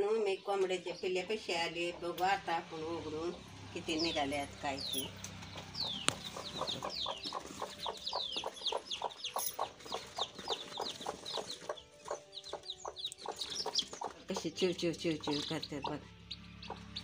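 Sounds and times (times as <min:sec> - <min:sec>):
chicks peeping: 0:03.9 - 0:17.0
hen clucking: 0:05.5 - 0:17.0.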